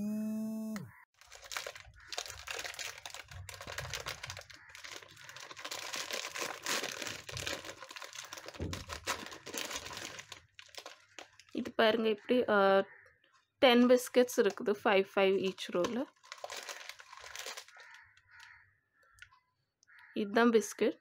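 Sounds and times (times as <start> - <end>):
plastic wrapper crinkling: 1.2 - 11.8, 15.4 - 18.5.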